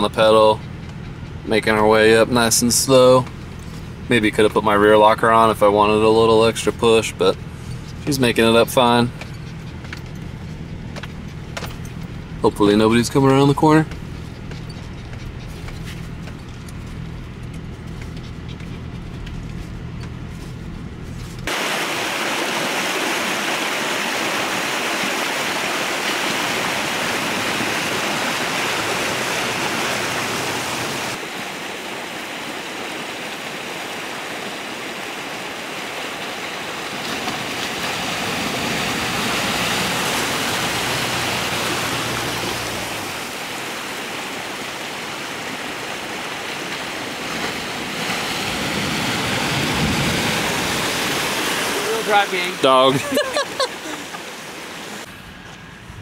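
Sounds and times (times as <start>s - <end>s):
stream water rushing: 0.0s - 14.8s, 21.5s - 55.6s
vehicle engine running: 0.0s - 21.6s.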